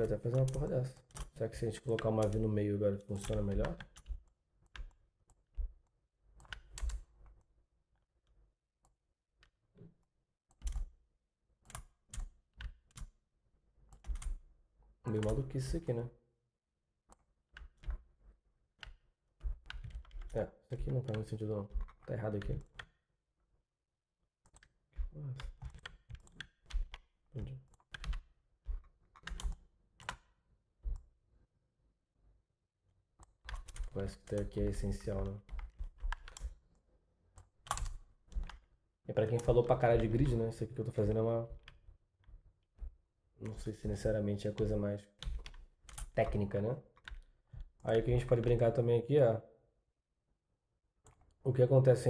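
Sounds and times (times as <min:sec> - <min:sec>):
computer keyboard tapping: 0:00.1 - 0:05.0, 0:15.1 - 0:15.8, 0:18.8 - 0:22.9, 0:24.5 - 0:30.3, 0:33.2 - 0:36.6, 0:37.4 - 0:38.6.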